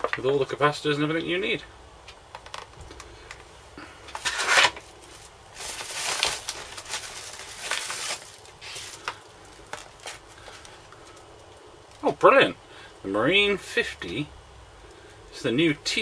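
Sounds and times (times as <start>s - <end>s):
plastic and paper crinkling: 4.1s - 12.2s.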